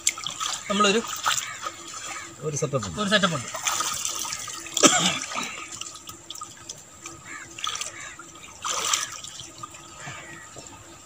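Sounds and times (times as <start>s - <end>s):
water sloshing and trickling: 0.0s - 11.0s
pole splashing into water: 3.5s - 5.9s, 8.6s - 9.3s.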